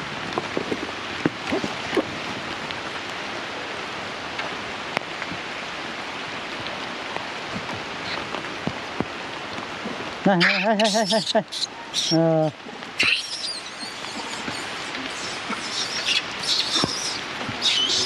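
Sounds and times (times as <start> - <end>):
rain on leaves and stone: 0.0 - 18.0.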